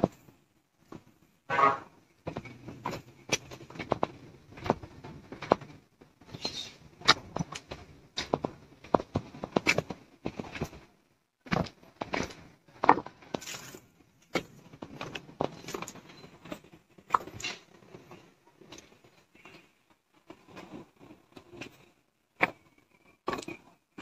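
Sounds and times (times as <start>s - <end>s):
footsteps going down steps: 0.0s - 19.2s.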